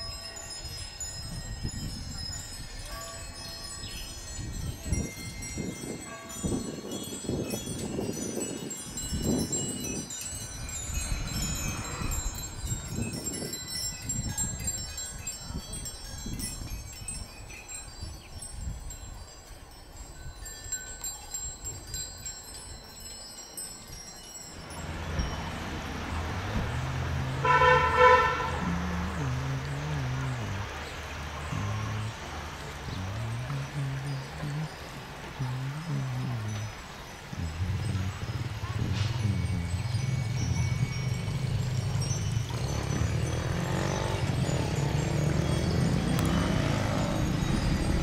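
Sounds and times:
small bells tinkling in wind: 0.0 - 48.0.

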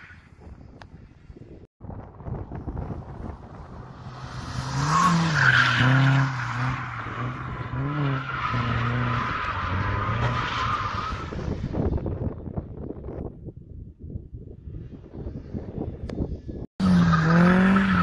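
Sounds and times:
tires squealing: 4.0 - 12.0, 16.8 - 18.0.

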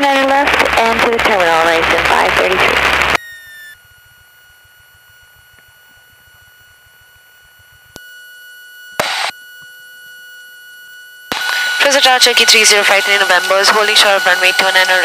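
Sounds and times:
loud burst of static: 0.0 - 3.2, 9.0 - 9.3, 11.3 - 15.0
high electronic whine: 0.0 - 15.0
light radio hiss: 10.7 - 15.0.

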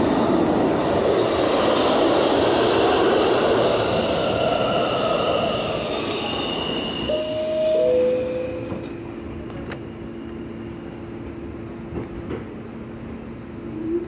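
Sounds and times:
low hum of train car: 0.0 - 14.0
two-tone door chime: 7.1 - 9.0.

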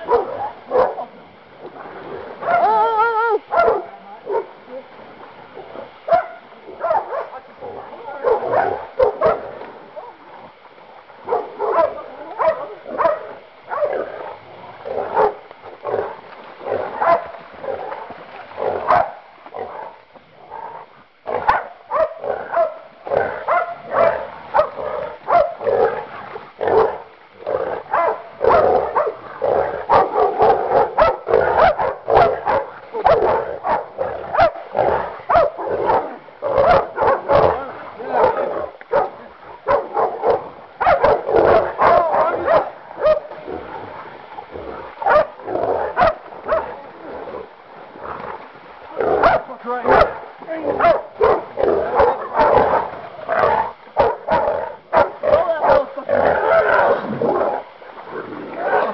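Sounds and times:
dogs barking: 0.0 - 1.0, 3.5 - 4.5, 6.1 - 7.4, 8.2 - 9.5, 11.3 - 14.1, 15.1 - 16.1, 17.0 - 17.4, 18.8 - 19.9, 21.3 - 26.0, 26.6 - 27.1, 27.9 - 43.4, 45.0 - 46.7, 49.2 - 57.5.

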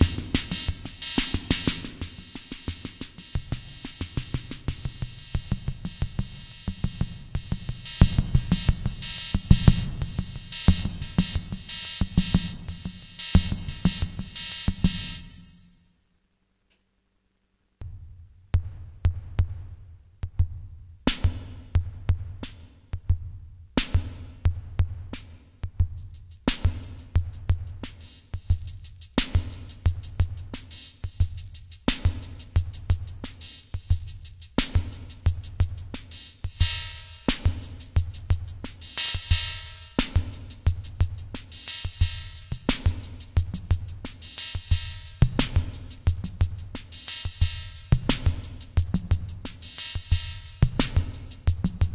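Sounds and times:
drum machine accent hit: 0.0 - 15.2
hi-hat and cymbal sounds: 0.0 - 15.8, 23.8 - 51.9.

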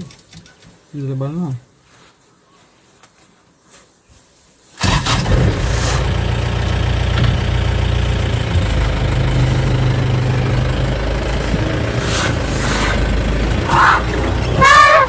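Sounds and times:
vehicle engine idling: 4.8 - 15.0.

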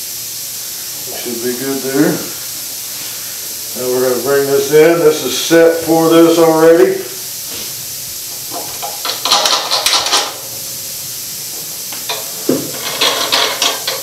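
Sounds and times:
steady hiss: 0.0 - 14.0
metal clinks and knocks: 8.5 - 10.4, 12.0 - 14.0.

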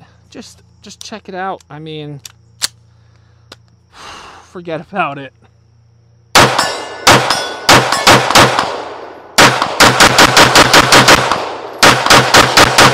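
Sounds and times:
pistol shots: 6.3 - 12.9
metallic ring: 6.6 - 8.1.

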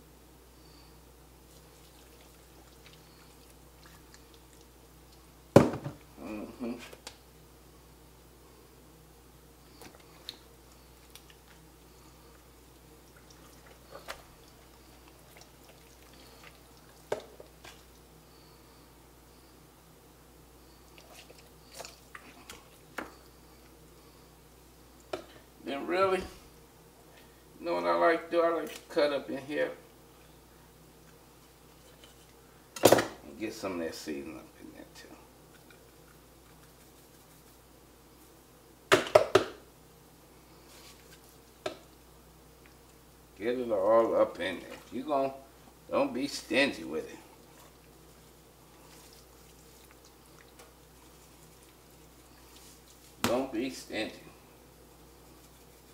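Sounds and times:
hand rubbing raw chicken: 1.4 - 4.7, 35.4 - 38.4, 40.6 - 41.6, 46.1 - 53.8, 54.9 - 55.9.

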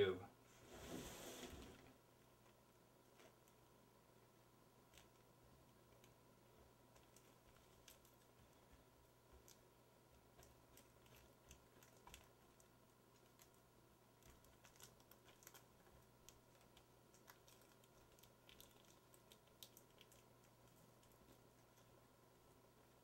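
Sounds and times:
faint steady hum: 0.0 - 23.0
tape ticks and rustles: 2.2 - 3.8, 4.8 - 22.0.

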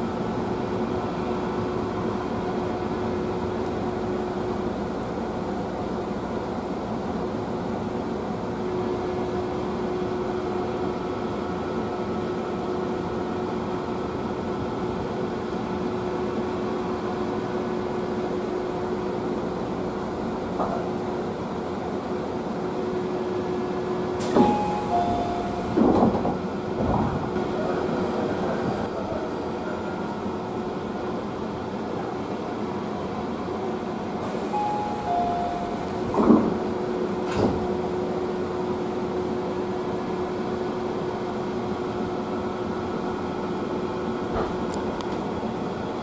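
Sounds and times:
train cabin rumble: 23.2 - 38.7
faint held tone: 24.4 - 25.8, 34.4 - 36.2.

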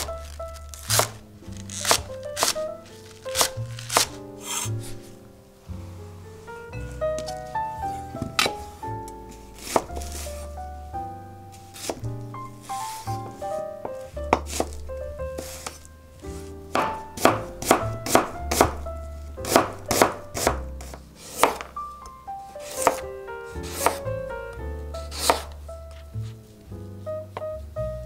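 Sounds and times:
knife chopping on cutting board: 0.8 - 1.2, 1.8 - 2.6, 3.3 - 5.0, 9.6 - 10.3, 11.8 - 12.0, 14.4 - 14.8, 16.7 - 18.8, 19.4 - 21.7, 22.6 - 23.0, 23.6 - 24.0, 25.1 - 25.5.

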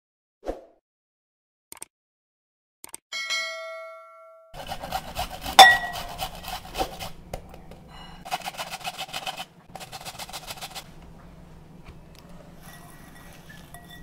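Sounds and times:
sharp clink: 3.2 - 4.6, 5.6 - 6.0
onion grating on metal grater: 4.6 - 7.2, 8.2 - 10.9.

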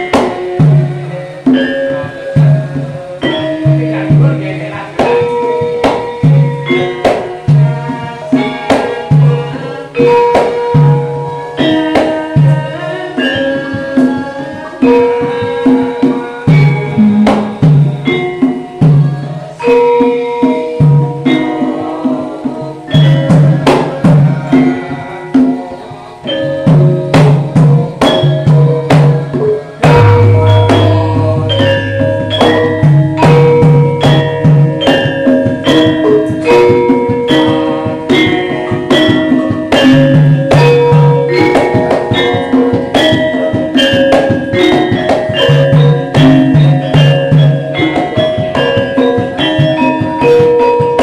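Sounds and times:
hand drum strokes: 0.0 - 51.0
metallophones and gong-chimes: 0.0 - 51.0
deep low tone: 29.9 - 34.3.

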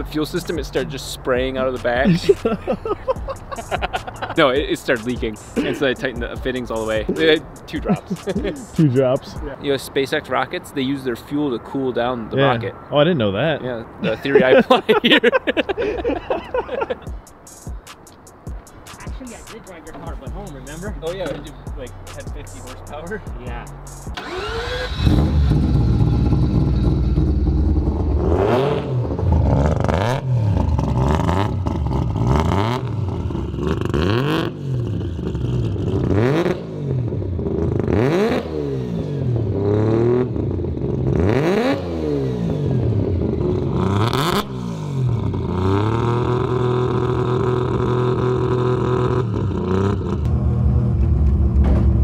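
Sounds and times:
rotary engine revving: 23.9 - 52.0
engine idling: 24.2 - 28.2.

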